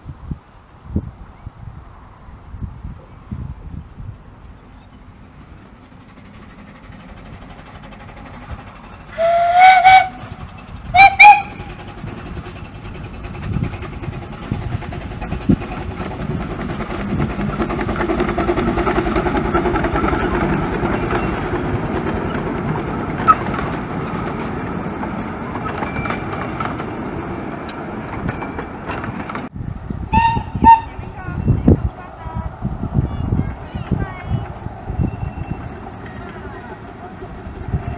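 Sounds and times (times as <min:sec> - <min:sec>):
steam train passing: 0:00.8 - 0:37.9
steam whistle blowing: 0:09.1 - 0:10.3, 0:10.9 - 0:11.7, 0:30.1 - 0:30.9.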